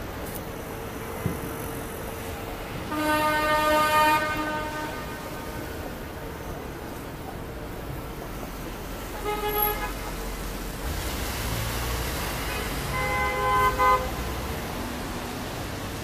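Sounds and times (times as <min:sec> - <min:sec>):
traffic noise: 0:00.0 - 0:16.0
car horns honking: 0:02.9 - 0:05.6, 0:09.2 - 0:10.1, 0:12.4 - 0:14.3.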